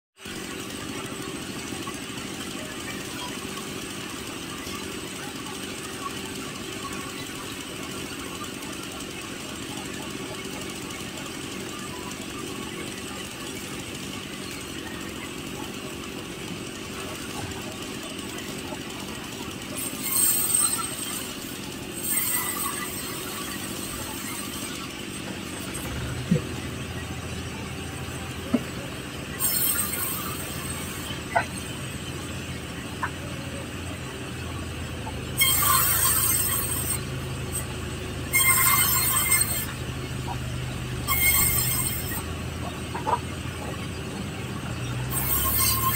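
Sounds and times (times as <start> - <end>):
band sawmill rattling: 0.2 - 45.9
saw blade cutting log: 16.9 - 27.1, 28.1 - 32.1, 35.3 - 43.3, 44.7 - 45.9.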